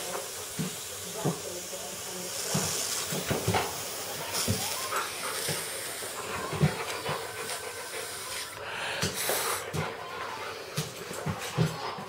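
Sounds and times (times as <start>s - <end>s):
dog panting: 2.4s - 12.0s.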